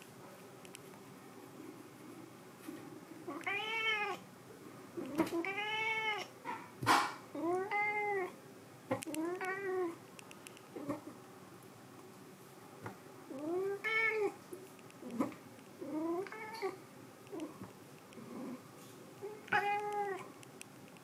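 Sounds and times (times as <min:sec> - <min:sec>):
cat meowing: 0:03.3 - 0:04.2, 0:05.1 - 0:06.3, 0:19.3 - 0:20.3.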